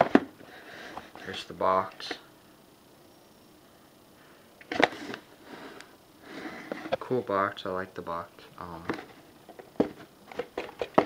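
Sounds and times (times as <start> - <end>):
person speaking: 1.1 - 2.3, 6.9 - 9.1.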